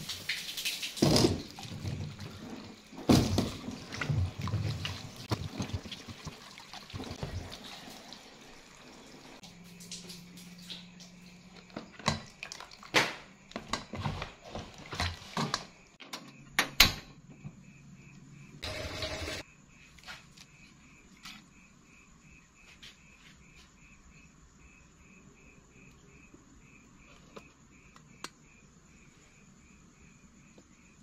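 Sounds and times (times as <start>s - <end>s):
water poured from hose: 0.0s - 10.8s
water splashing and dripping: 0.0s - 13.3s.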